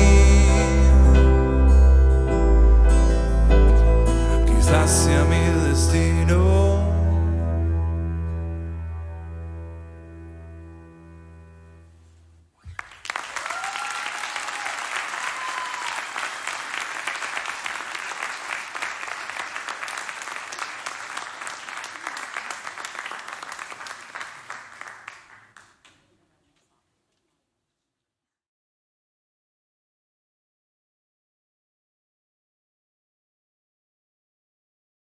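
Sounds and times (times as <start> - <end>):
audience applause: 12.7 - 26.0.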